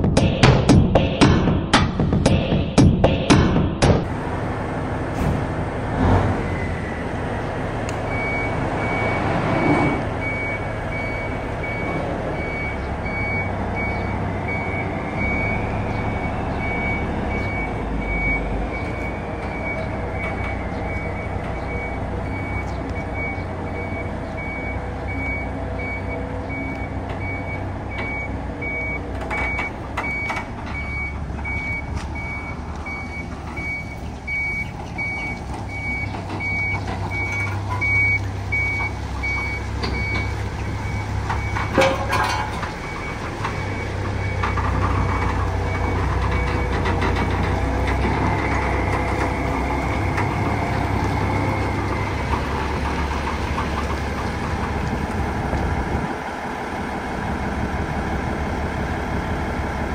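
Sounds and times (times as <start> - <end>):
diesel engine running: 1.1 - 59.9
reverse alarm beeping: 8.1 - 46.8.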